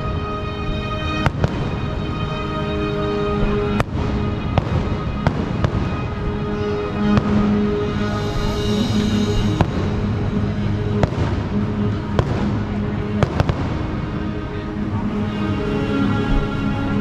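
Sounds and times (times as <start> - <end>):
music playing: 0.0 - 17.0
fireworks bangs: 1.2 - 2.0, 3.4 - 14.2.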